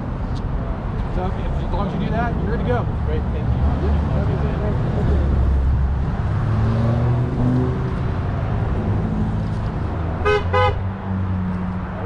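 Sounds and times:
road traffic passing: 0.0s - 12.0s
car horn short beeps: 10.2s - 10.8s.

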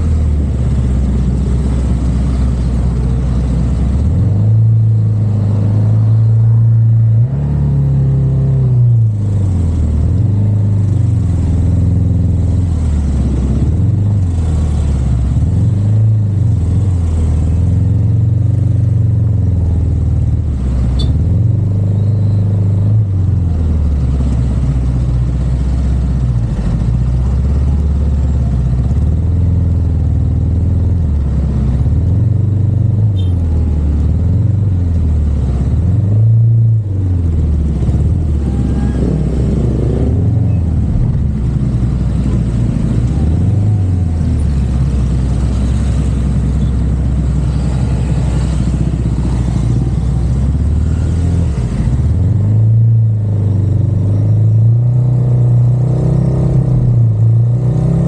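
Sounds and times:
car engine drone: 0.0s - 58.0s
road noise: 0.0s - 58.0s.

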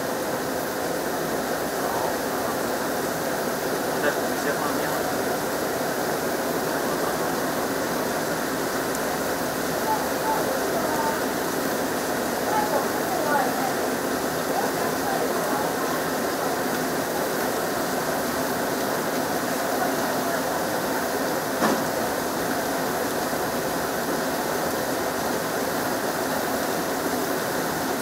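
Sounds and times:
gas range rushing: 20.8s - 24.4s.

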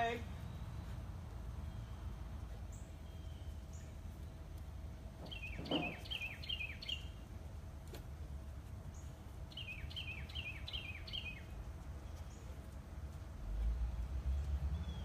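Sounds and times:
low outdoor rumble: 0.0s - 15.0s
small bird chirping: 5.2s - 7.2s, 8.9s - 12.6s.

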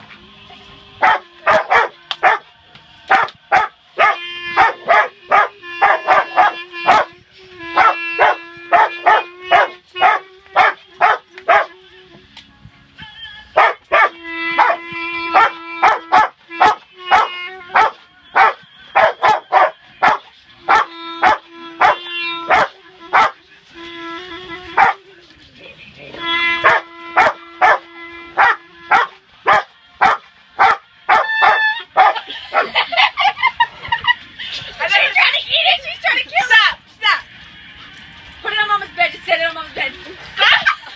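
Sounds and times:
clarinet playing: 1.0s - 2.4s, 3.1s - 12.2s, 13.2s - 33.6s
dog barking: 1.0s - 2.4s, 3.1s - 7.1s, 7.8s - 11.7s, 13.6s - 23.4s, 24.8s - 25.0s, 26.6s - 32.8s
people laughing: 32.1s - 35.2s, 40.0s - 40.9s.

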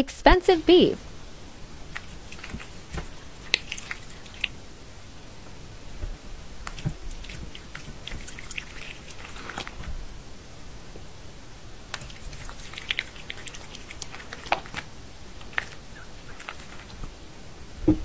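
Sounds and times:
cat chewing raw meat: 1.8s - 4.7s, 6.6s - 10.0s, 11.8s - 17.1s.

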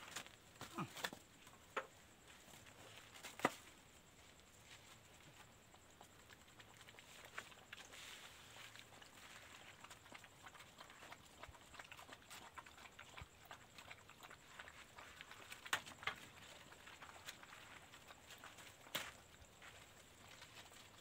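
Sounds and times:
dogs lapping water: 6.0s - 21.0s.

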